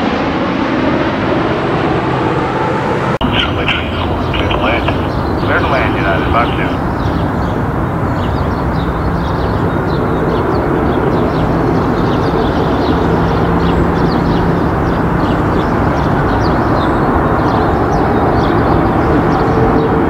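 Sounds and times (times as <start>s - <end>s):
jet airliner engines roaring: 0.0s - 20.0s.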